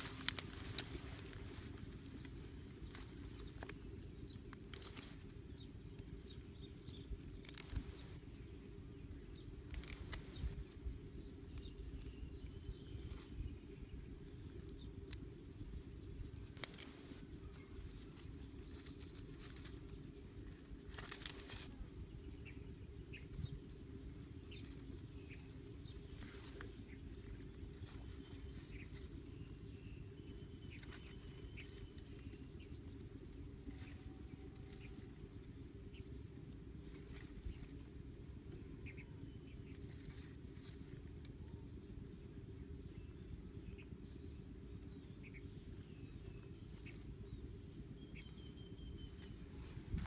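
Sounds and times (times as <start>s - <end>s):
dry grass rustling and crackling: 0.0s - 42.0s, 45.0s - 50.0s
steady low hum: 0.0s - 50.0s.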